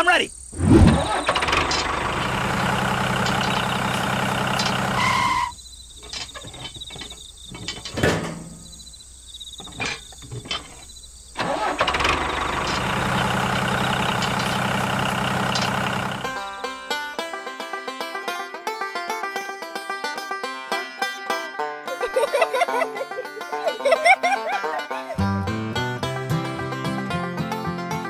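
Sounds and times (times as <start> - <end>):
tractor engine idling: 0.6 - 17.2
toy trailer clicking and knocking: 0.9 - 8.7, 9.6 - 16.6.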